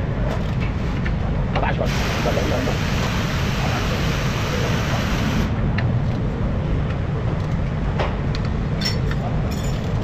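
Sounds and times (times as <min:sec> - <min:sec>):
hiss: 0:01.8 - 0:05.5.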